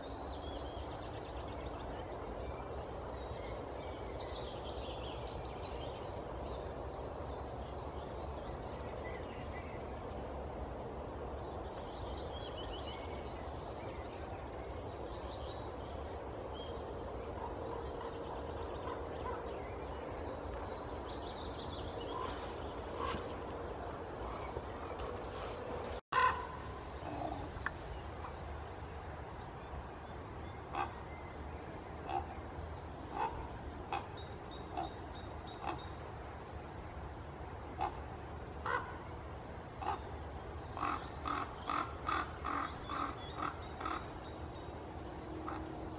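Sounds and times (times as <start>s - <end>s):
songbirds singing: 0.0s - 45.9s
raven calling: 26.2s - 27.6s, 30.7s - 31.0s, 32.0s - 32.3s, 33.1s - 35.0s, 37.8s - 39.0s, 39.8s - 40.1s, 40.8s - 44.2s.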